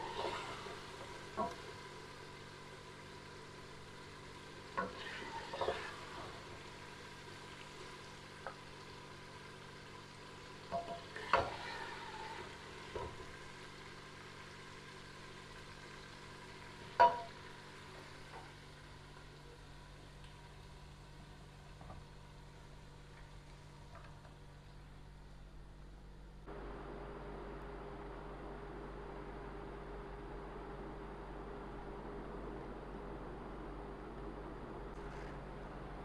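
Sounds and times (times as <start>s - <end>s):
steady low hum: 16.6s - 36.0s.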